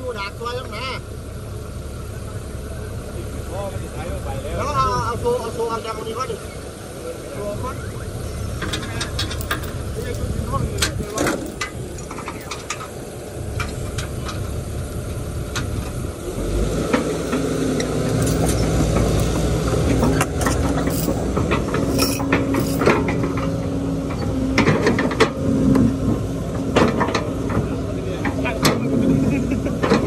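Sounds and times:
excavator diesel engine running: 0.0s - 30.0s
metallic clicks and knocks: 8.6s - 13.0s, 16.9s - 23.5s.

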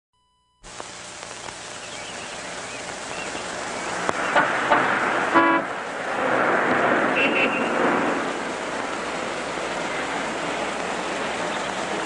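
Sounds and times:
faint chirps: 0.2s - 4.4s
sharp clicks: 0.6s - 4.5s
traffic hiss: 0.6s - 12.0s
car horn toots: 4.3s - 5.8s, 7.1s - 7.8s.

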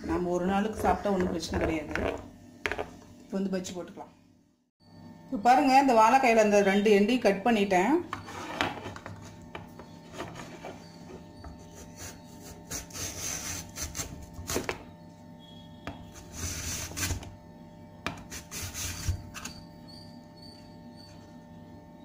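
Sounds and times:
banana scraped on slicer blade: 11.8s - 14.7s, 18.2s - 19.6s.

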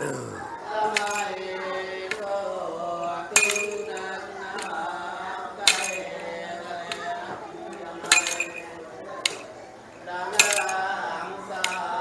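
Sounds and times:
men chanting: 0.0s - 12.0s
staff striking floor with clink: 0.9s - 1.4s, 3.3s - 4.8s, 5.6s - 9.5s, 10.3s - 11.0s, 11.6s - 12.0s.

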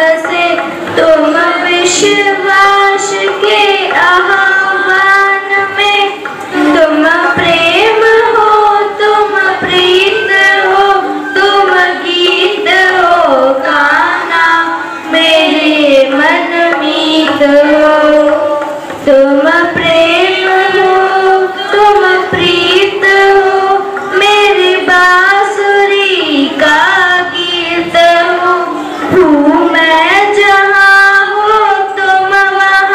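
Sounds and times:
girls singing in unison: 0.0s - 32.9s
harmonium: 0.0s - 32.9s.

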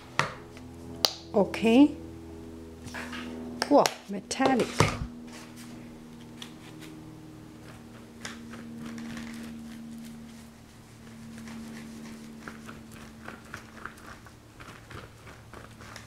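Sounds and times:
low hum: 0.0s - 16.0s
paintbrush swishing on paper: 10.3s - 14.3s.

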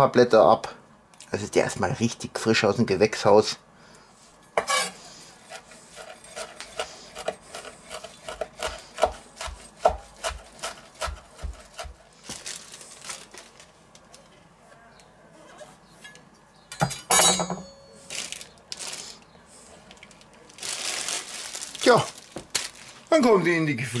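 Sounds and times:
knife chopping on wooden board: 6.0s - 12.0s
herbs rustling: 10.5s - 14.3s, 18.0s - 24.0s.

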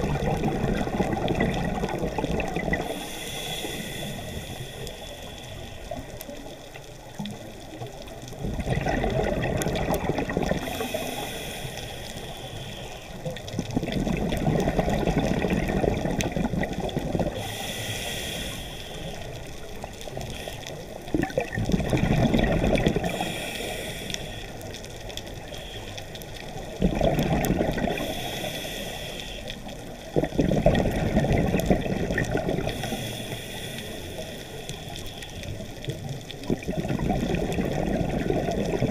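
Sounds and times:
exhaled bubbles rushing underwater: 0.0s - 4.7s, 5.9s - 11.6s, 13.1s - 17.8s, 19.1s - 28.9s, 29.5s - 34.8s, 35.4s - 38.9s
regulator inhalation hiss: 2.8s - 6.2s, 10.6s - 13.3s, 17.3s - 20.9s, 23.0s - 24.7s, 27.9s - 29.8s, 32.6s - 35.6s.

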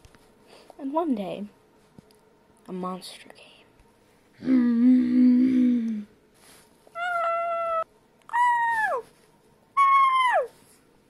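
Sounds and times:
high squeaky cries: 9.8s - 10.5s.

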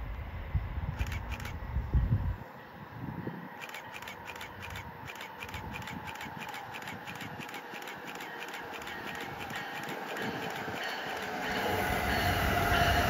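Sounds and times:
train rumbling: 0.0s - 13.0s
fast even ticking clicks: 1.0s - 1.6s, 3.6s - 11.6s.

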